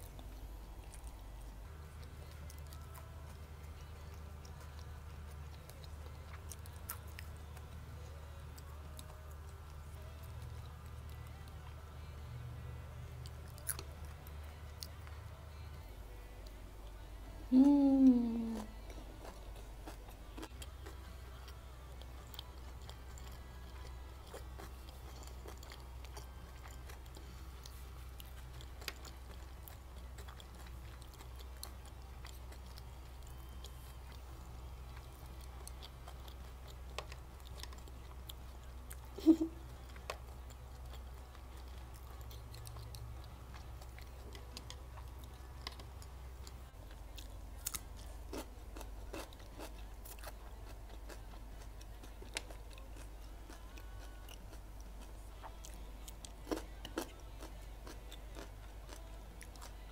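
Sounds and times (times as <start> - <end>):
steady low hum: 0.0 - 59.9
chewing with wet mouth clicks: 13.2 - 15.2, 18.6 - 59.9.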